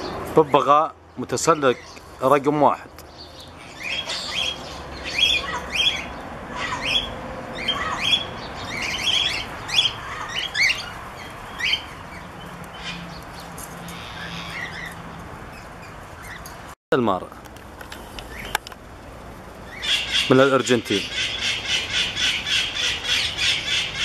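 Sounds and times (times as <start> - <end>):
parakeets squawking: 3.4 - 16.5, 19.6 - 24.0.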